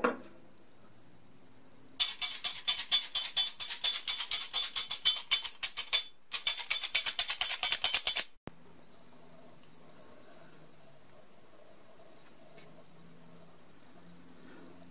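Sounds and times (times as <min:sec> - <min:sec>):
metal vise parts rattling: 0:02.0 - 0:08.4.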